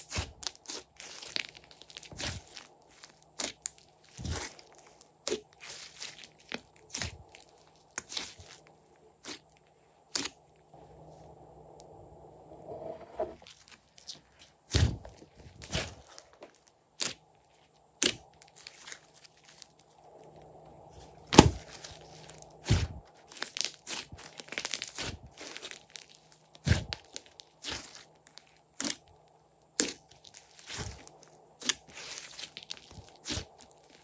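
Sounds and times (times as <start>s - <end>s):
slime popping and crackling: 21.3s - 29.1s.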